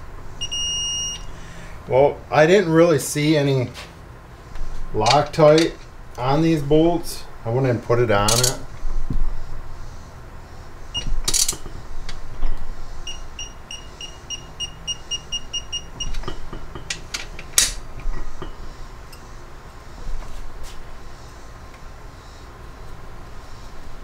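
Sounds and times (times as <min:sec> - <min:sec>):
short high electronic beeps: 0:00.4 - 0:01.3
hand tools clicking on metal: 0:08.3 - 0:08.6.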